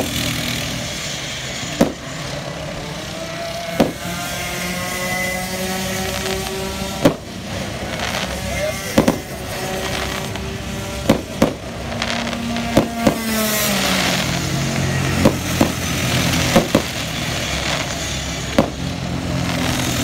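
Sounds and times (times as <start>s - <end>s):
fireworks bursting in bangs: 0.0s - 0.9s, 1.6s - 2.4s, 3.7s - 4.2s, 6.1s - 20.0s
engine drone falling in pitch: 0.0s - 20.0s.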